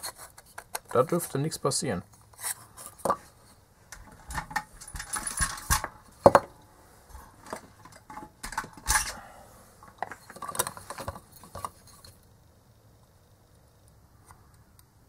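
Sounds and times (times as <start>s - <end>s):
plastic parts and tools clicking: 0.0s - 1.4s, 3.9s - 6.5s, 7.4s - 9.2s, 9.8s - 12.2s.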